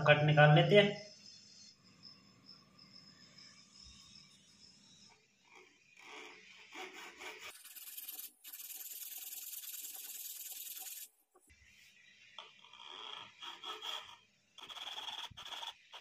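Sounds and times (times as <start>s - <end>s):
hand tool scraping wood: 13.2s - 16.0s.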